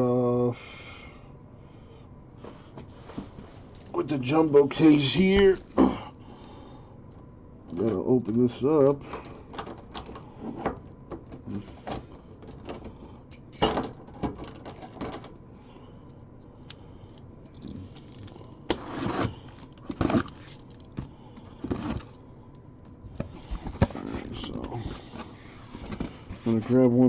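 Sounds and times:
cardboard scraping: 18.7s - 20.6s.

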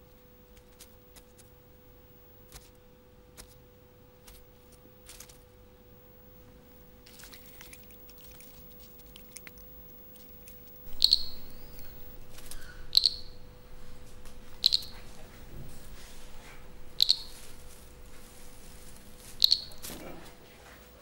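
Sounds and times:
faint steady hum: 0.0s - 21.0s
frog chirping: 7.1s - 15.4s, 16.8s - 17.8s, 19.1s - 20.0s.

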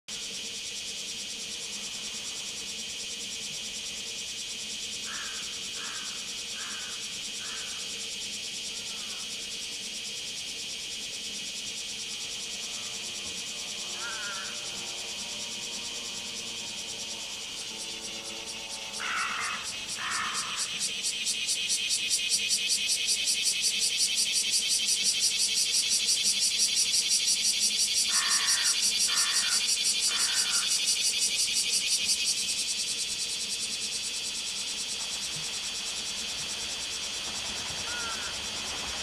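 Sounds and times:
cicadas buzzing: 0.1s - 39.0s.

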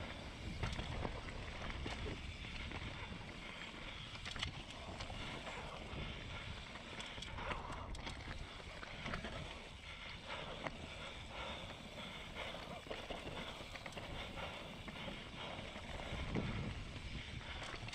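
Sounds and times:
bike tyres rumbling on dirt: 0.0s - 17.9s
bike rattling over stones: 0.1s - 17.9s
wind on microphone: 15.9s - 17.9s.

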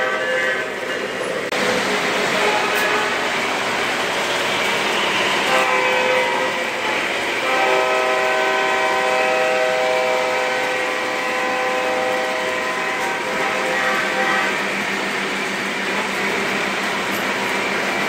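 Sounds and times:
multi-note train horn: 0.0s - 0.8s, 2.2s - 3.5s, 5.0s - 14.8s
model train rolling rumble: 0.0s - 18.0s.

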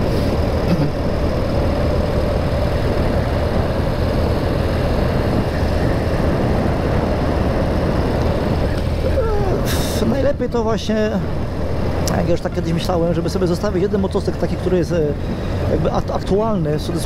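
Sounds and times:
motorcycle engine running: 0.0s - 9.7s
wind rush: 0.0s - 10.6s.

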